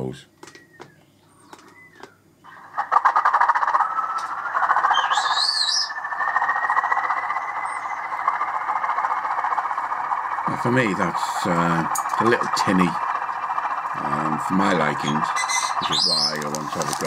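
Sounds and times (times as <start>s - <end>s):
tinny diesel engine sound: 3.8s - 17.0s.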